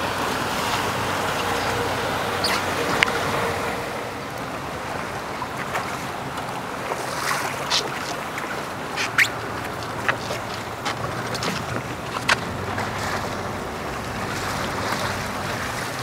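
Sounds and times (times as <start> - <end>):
water washing against hull: 0.0 - 16.0.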